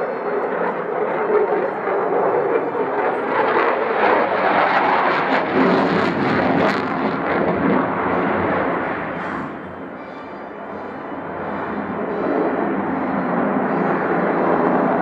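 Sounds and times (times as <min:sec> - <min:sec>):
jet engines in afterburner: 0:00.0 - 0:15.0.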